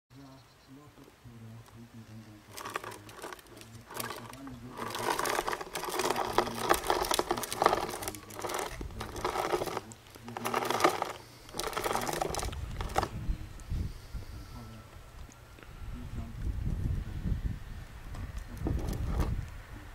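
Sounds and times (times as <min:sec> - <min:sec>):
plastic wheels rattling on concrete: 0:02.4 - 0:13.2, 0:18.4 - 0:19.5.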